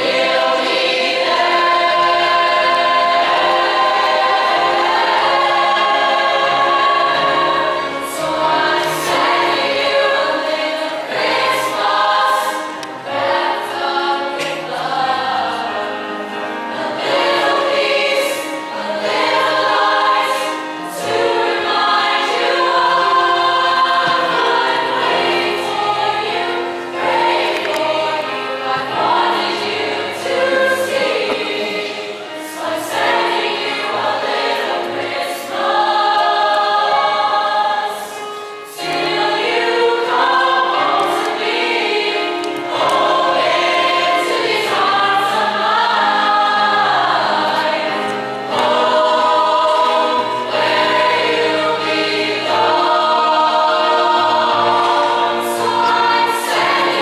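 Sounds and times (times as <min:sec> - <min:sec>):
choir singing in harmony: 0:00.0 - 0:57.0.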